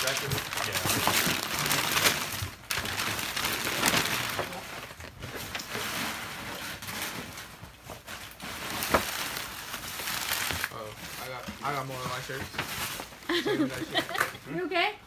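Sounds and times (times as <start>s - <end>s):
wrapping paper crinkling: 0.0s - 14.3s.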